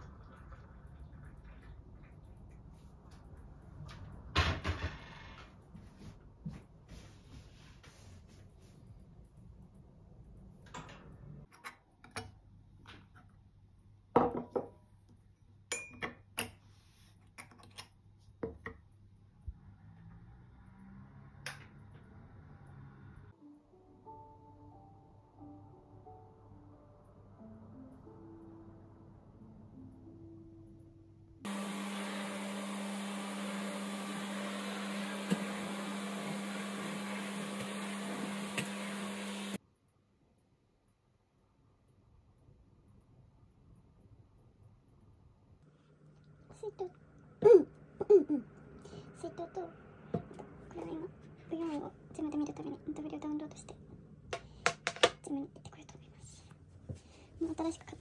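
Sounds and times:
vacuum cleaner running: 0:31.5 - 0:39.6.

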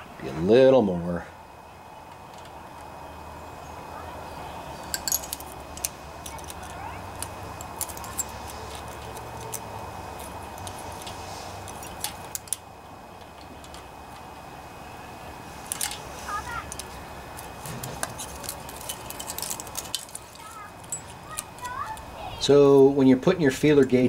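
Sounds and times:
steady background hum: 0:00.0 - 0:24.0
metallic clicks of hand tools: 0:04.9 - 0:12.6
feeler gauge blade sliding: 0:05.0 - 0:14.2.

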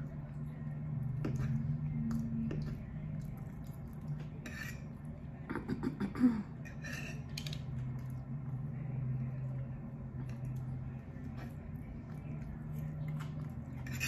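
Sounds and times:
chewing and mouth noises: 0:00.0 - 0:04.4, 0:09.5 - 0:14.0
steady low hum: 0:00.0 - 0:14.0.

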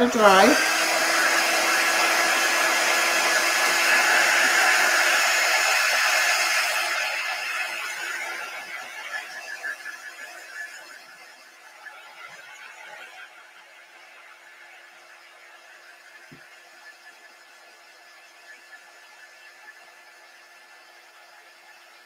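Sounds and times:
handheld dryer blowing: 0:00.0 - 0:13.2.

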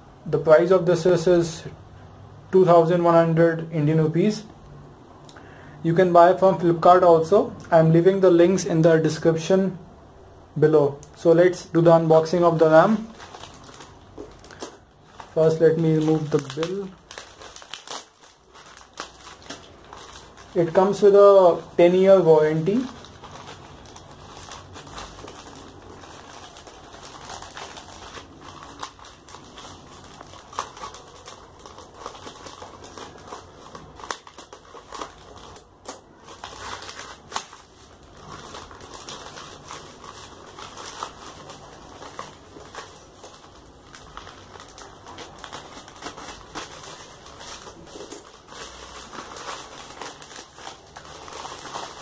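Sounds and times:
plastic bag crinkling and tearing: 0:11.0 - 0:52.0.

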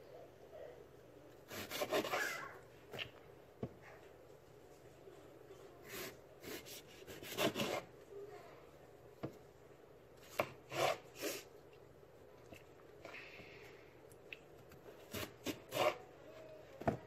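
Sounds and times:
knife slicing potatoes: 0:01.4 - 0:03.1, 0:05.9 - 0:07.9, 0:10.2 - 0:11.5, 0:15.0 - 0:16.1.

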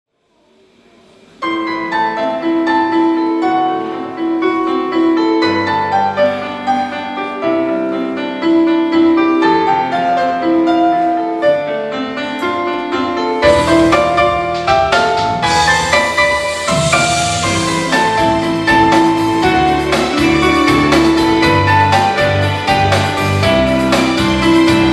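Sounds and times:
electronic keyboard chords: 0:01.4 - 0:24.9
full band with drums: 0:13.4 - 0:24.9.

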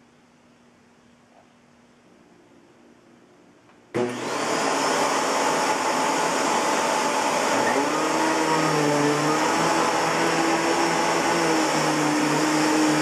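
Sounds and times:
vacuum cleaner running: 0:03.9 - 0:13.0.

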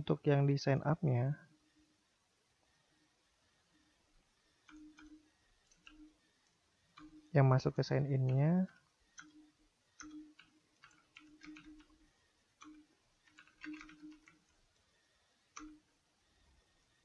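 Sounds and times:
computer keyboard key clicks: 0:10.0 - 0:12.0, 0:12.6 - 0:14.5.

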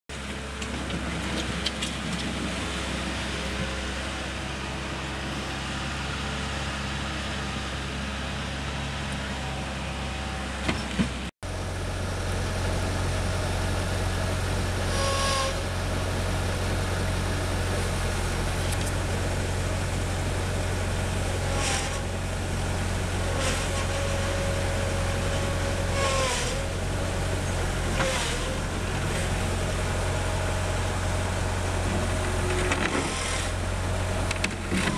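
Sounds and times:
loader engine running: 0:00.1 - 0:34.9
short squeaks: 0:14.9 - 0:15.7, 0:26.0 - 0:26.7, 0:34.4 - 0:34.9.

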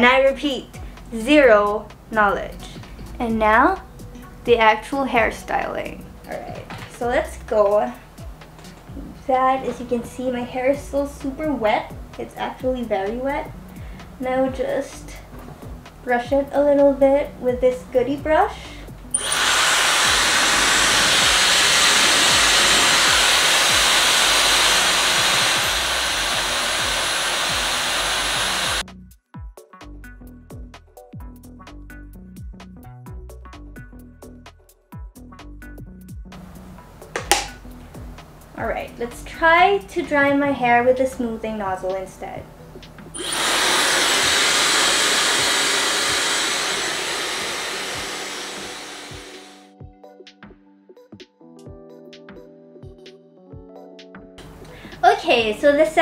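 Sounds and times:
hair dryer blowing air: 0:19.2 - 0:28.8, 0:43.2 - 0:49.7.

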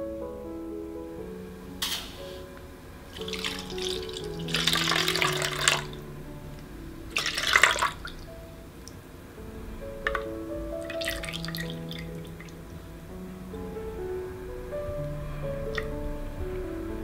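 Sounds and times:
liquid pouring and splashing: 0:03.1 - 0:06.0, 0:07.0 - 0:08.4, 0:10.1 - 0:12.7.

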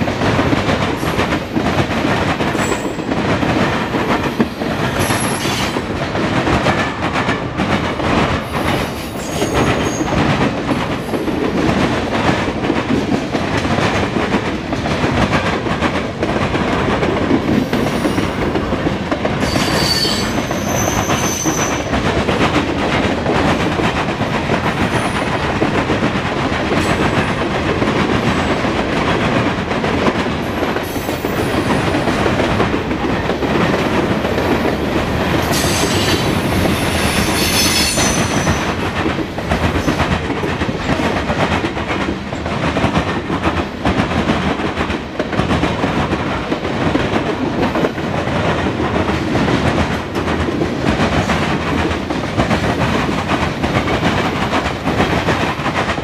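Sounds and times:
clickety-clack over rail joints: 0:00.0 - 0:56.0
train wheels rumbling on rail: 0:00.0 - 0:56.0
high-pitched wheel squeal: 0:19.5 - 0:21.8.

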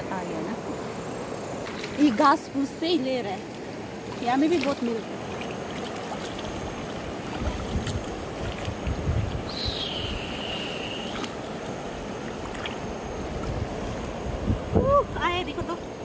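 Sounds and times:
river water sloshing: 0:00.0 - 0:16.0
high whistle-like tone: 0:09.5 - 0:11.2.

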